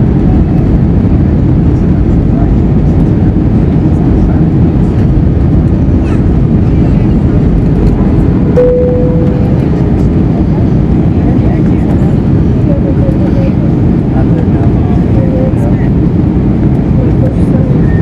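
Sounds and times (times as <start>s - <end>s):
airplane cabin rumble: 0.0s - 18.0s
short cabin chime tone: 8.6s - 9.6s.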